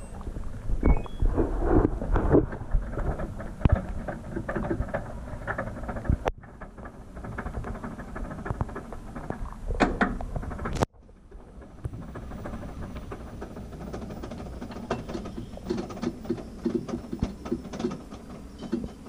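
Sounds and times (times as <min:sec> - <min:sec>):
rising beeps from control panel: 0:00.8 - 0:01.3.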